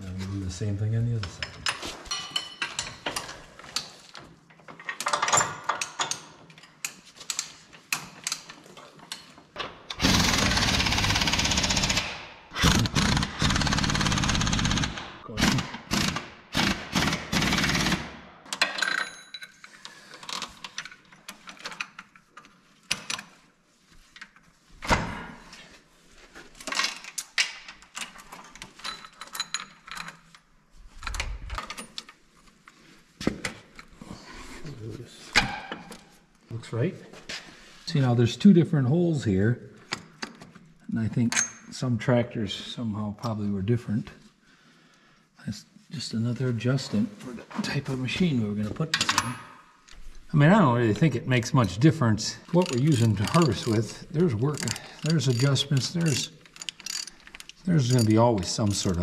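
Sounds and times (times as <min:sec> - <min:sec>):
tools clinking on steel: 0:01.2 - 0:03.9, 0:18.5 - 0:22.2, 0:26.7 - 0:30.4, 0:41.3 - 0:41.7, 0:52.4 - 0:59.0
air impact wrench hammering: 0:10.0 - 0:18.1
roller chain rattling: 0:52.4 - 0:59.0.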